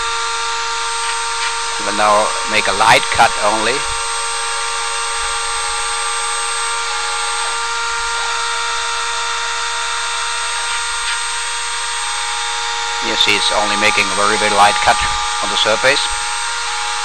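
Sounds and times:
milling machine spindle whining: 0.0 - 17.0.

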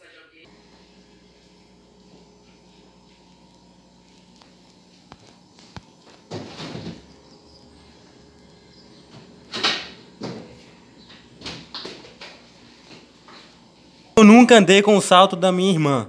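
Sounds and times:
refrigerator door opening: 6.2 - 7.6, 8.8 - 12.5.

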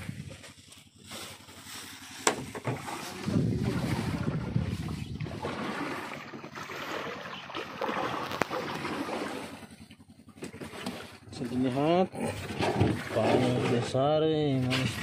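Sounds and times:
sea water rushing: 2.8 - 9.7
wind rushing: 3.2 - 5.5.

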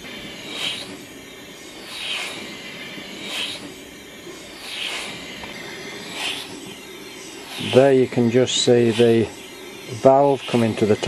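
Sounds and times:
compressed air hissing from engine: 0.0 - 11.0.

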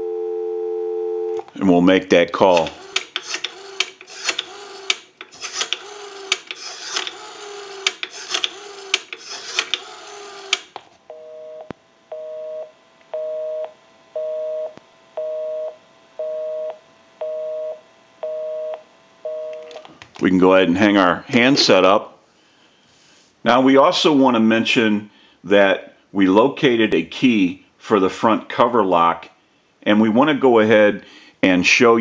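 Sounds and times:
rotary dial clicking: 2.6 - 10.8
two-tone busy signal beeps: 11.1 - 19.7.

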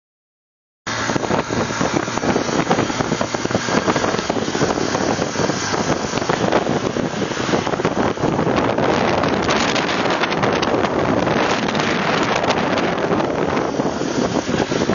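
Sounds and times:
road noise: 0.9 - 14.9
wind buffeting microphone: 0.9 - 14.9.

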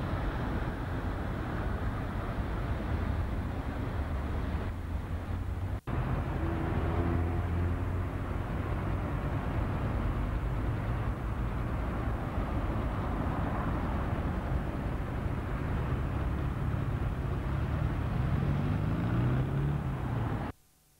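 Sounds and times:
passing cars rumble and hiss: 0.0 - 20.6
vehicle engine speeding up: 5.6 - 9.1, 15.9 - 20.5.

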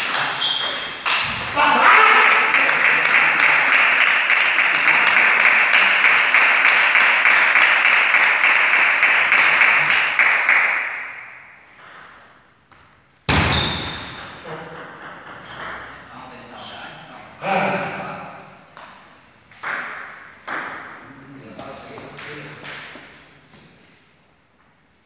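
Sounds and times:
spectators clapping: 1.6 - 11.3.

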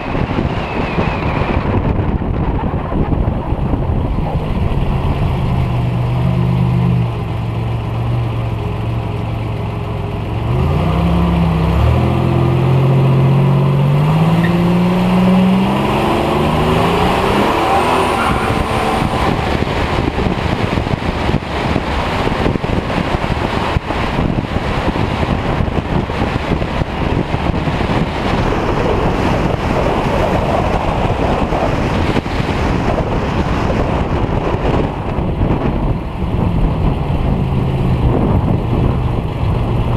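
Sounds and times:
car engine accelerating: 0.0 - 39.9
wind noise: 0.0 - 39.9.

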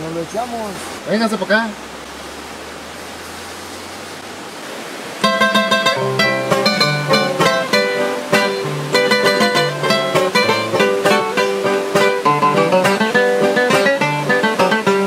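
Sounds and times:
background hiss: 0.0 - 15.0
acoustic guitars playing: 5.2 - 15.0.

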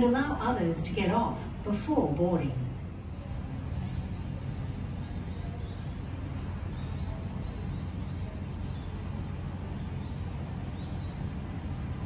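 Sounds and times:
low rumble of city background: 0.0 - 12.0
faint bird chirps: 2.7 - 11.9.

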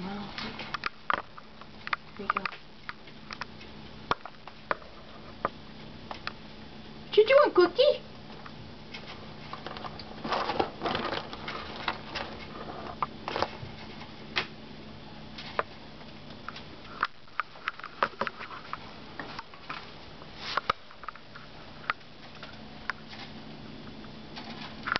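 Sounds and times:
rustling in cage bedding: 8.9 - 14.4, 18.0 - 24.9.

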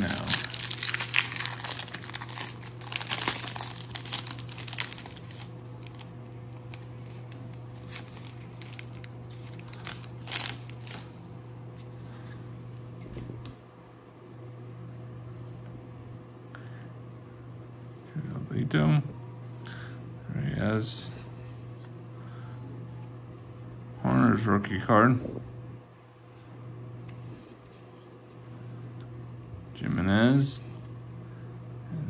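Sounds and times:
cellophane wrapper tearing and crinkling: 0.0 - 11.2
steady low hum: 0.0 - 32.0.

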